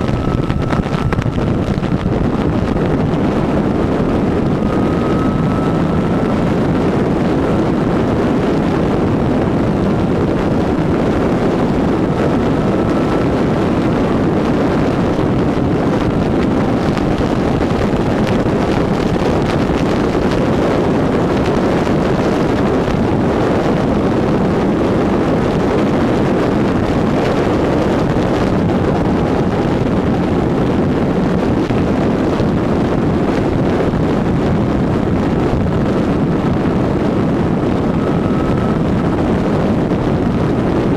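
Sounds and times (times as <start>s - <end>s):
motorcycle engine droning: 0.0s - 40.9s
wind rushing on microphone: 0.0s - 40.9s.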